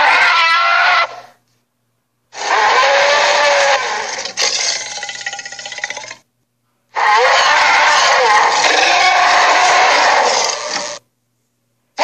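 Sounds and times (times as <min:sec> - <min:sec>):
cartoon dinosaur roar: 0:02.4 - 0:06.2, 0:07.0 - 0:11.0.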